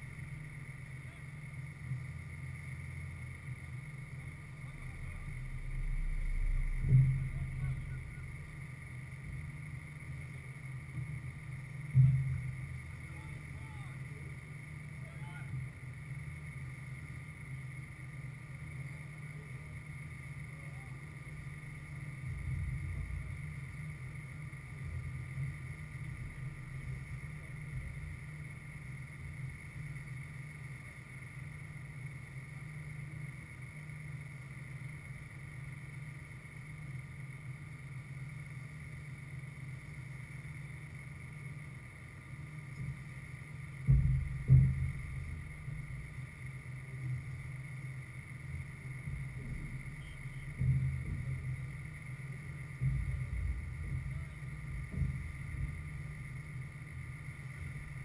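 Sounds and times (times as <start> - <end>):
faint high hum: 0.0 - 58.0
sharp thumps: 4.6 - 9.8, 43.8 - 47.5, 48.6 - 58.0.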